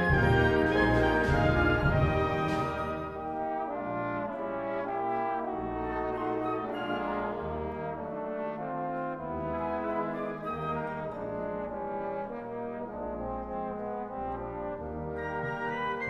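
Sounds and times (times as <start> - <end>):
wind band brass chords: 0.0 - 16.0.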